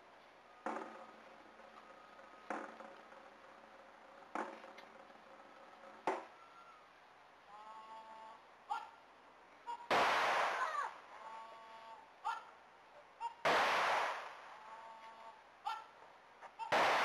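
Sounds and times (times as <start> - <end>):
cannon firing: 9.9 - 10.9, 13.4 - 14.5, 16.7 - 17.0.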